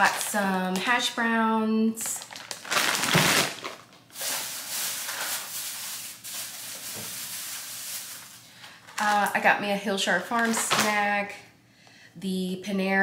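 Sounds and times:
frozen food bag crinkling: 0.0s - 1.2s, 2.0s - 9.4s, 10.2s - 11.0s
plastic shopping bags rustling: 0.0s - 1.2s, 2.0s - 9.5s, 10.2s - 11.2s.

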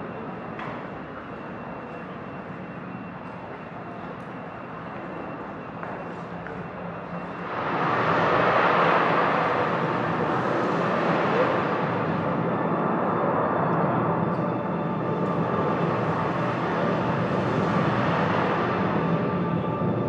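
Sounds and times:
noisy ambient wash: 0.0s - 20.0s.

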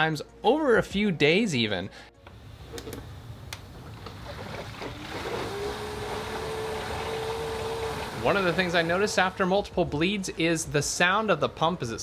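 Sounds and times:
electric pump whine: 2.2s - 9.5s
coolant gurgling: 3.7s - 9.4s.

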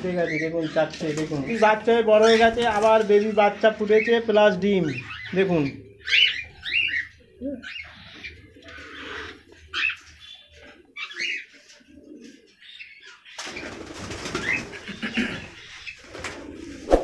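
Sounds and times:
cockatiels calling: 0.0s - 11.6s.

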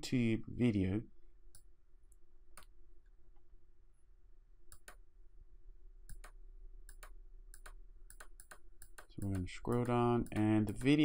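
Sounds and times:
mouse scroll wheel clicks: 6.1s - 11.0s.

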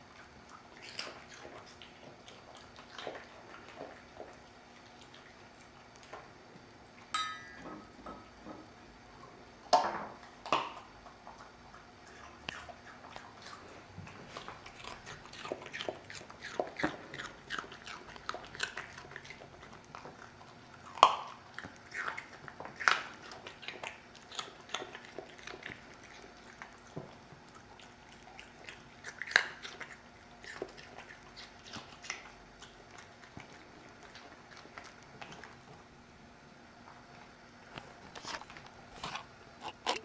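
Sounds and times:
dog crunching carrot: 0.0s - 6.4s, 10.2s - 35.9s, 36.8s - 40.0s.

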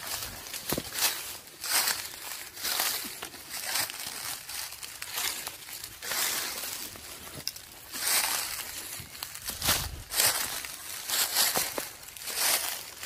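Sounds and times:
footsteps crunching dry leaves: 0.0s - 13.0s.

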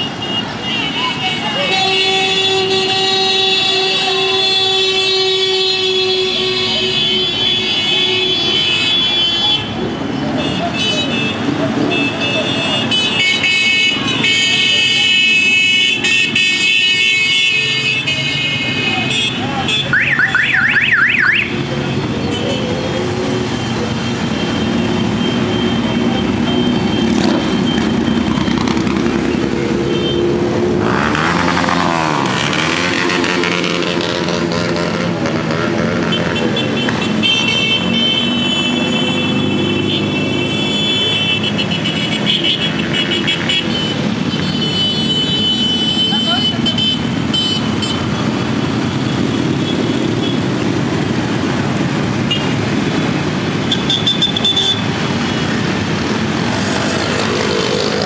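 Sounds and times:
warbling electronic siren tone: 20.0s - 21.5s
motorcycles riding past: 21.6s - 37.2s, 54.8s - 58.0s.

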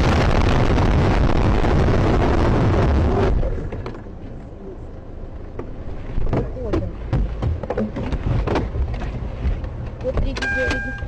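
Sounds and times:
car crash rushing and rumbling: 0.0s - 4.1s.

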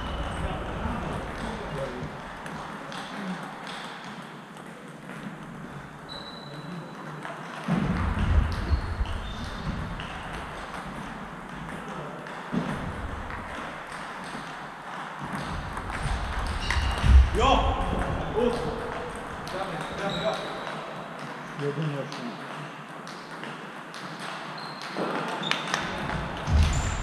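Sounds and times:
table tennis balls clicking: 1.1s - 6.0s, 7.1s - 17.1s.

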